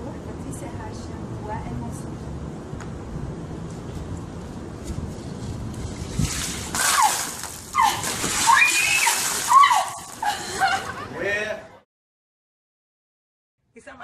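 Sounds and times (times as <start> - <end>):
ice water splashing: 5.8 - 10.6
person crying out: 7.8 - 10.7.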